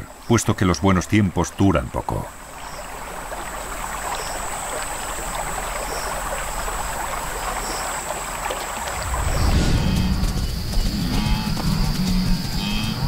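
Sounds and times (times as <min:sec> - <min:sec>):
water lapping and splashing: 0:00.0 - 0:13.0
low rumble: 0:08.9 - 0:13.0
faint high whine: 0:09.0 - 0:13.0.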